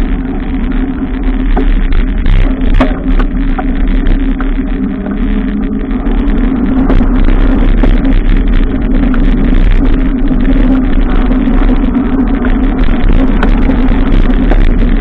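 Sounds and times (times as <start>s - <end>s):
bicycle clicks and rattles: 0.0s - 15.0s
bicycle running hum: 0.0s - 15.0s.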